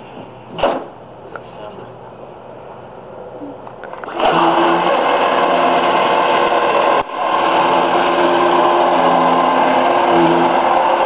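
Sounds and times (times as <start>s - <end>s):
electric motor whine: 3.9s - 11.0s.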